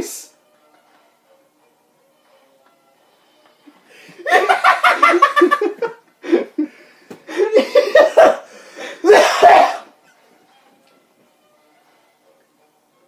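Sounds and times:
men laughing hard: 4.1s - 9.8s.

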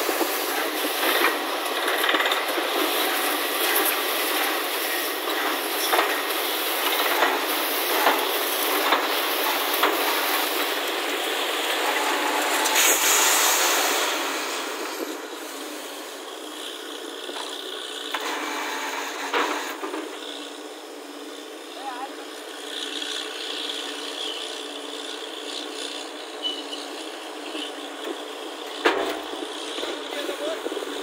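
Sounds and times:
drilling rig air hiss: 6.4s - 16.9s.

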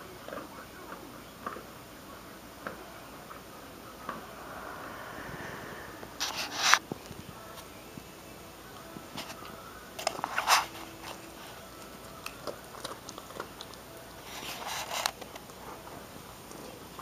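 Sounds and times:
dog chewing bone: 10.0s - 15.6s.

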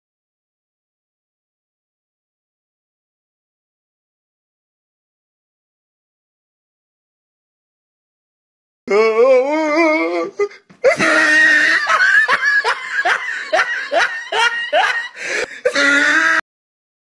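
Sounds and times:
wavering vocal cry: 8.9s - 16.4s
person laughing hard: 10.3s - 16.4s.

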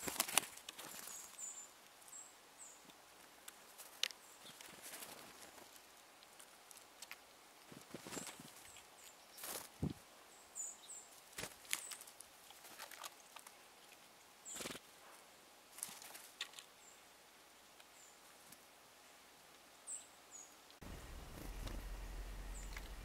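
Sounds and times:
squirrel feeding clicks and crackles: 0.0s - 9.8s, 11.0s - 14.9s, 15.7s - 16.9s, 20.7s - 23.0s.

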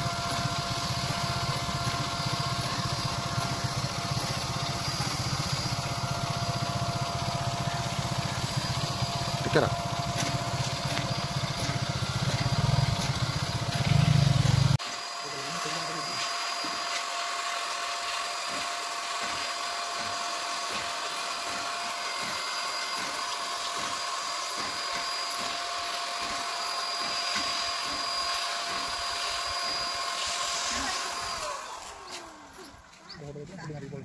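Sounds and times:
spray hissing: 0.0s - 16.8s, 30.2s - 32.7s
paint sprayer motor whine: 0.0s - 33.6s.

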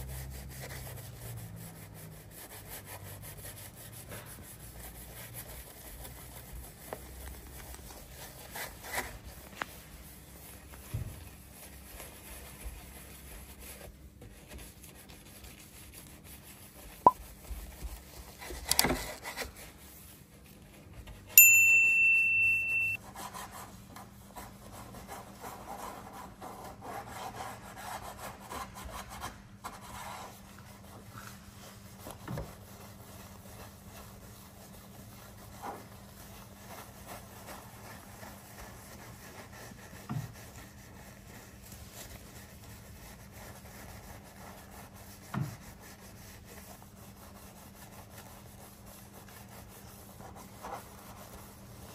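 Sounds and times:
brush scrubbing soapy foam: 0.0s - 21.3s, 22.5s - 51.9s
loud high steady ring: 21.4s - 23.0s.

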